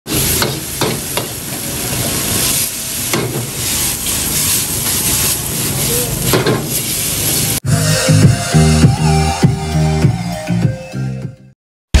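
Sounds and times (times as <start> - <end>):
noodles sizzling in a wok: 0.1 - 7.6.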